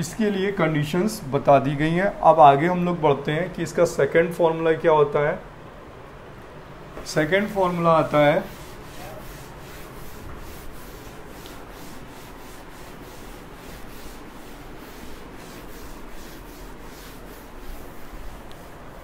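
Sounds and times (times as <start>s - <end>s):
cloth wiping chalkboard: 7.0s - 19.0s.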